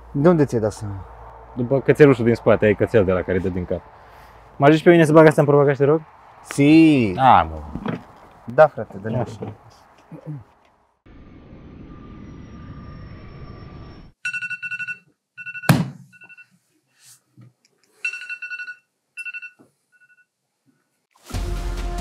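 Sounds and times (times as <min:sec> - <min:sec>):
smartphone alarm beeping: 0:14.2 - 0:16.6, 0:18.0 - 0:20.3.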